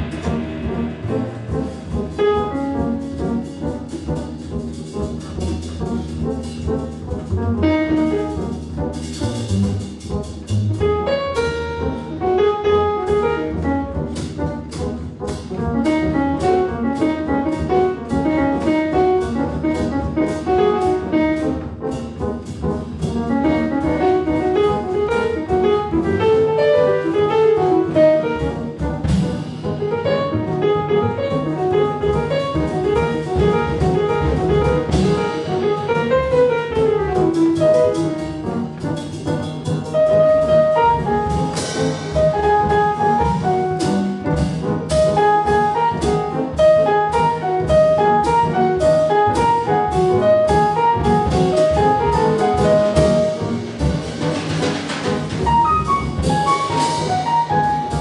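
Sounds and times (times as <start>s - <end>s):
drum kit cymbals: 0.0s - 7.3s, 31.9s - 58.0s
jazz piano trio playing: 0.0s - 58.0s
piano runs: 23.0s - 58.0s.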